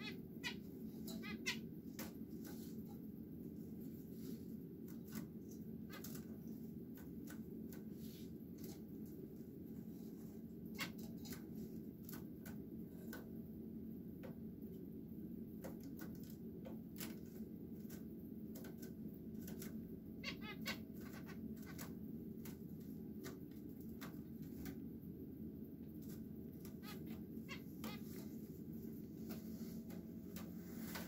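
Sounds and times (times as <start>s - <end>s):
finches chirping: 0.0s - 1.6s, 20.2s - 21.8s, 26.6s - 28.3s
steady low hum: 0.0s - 31.0s.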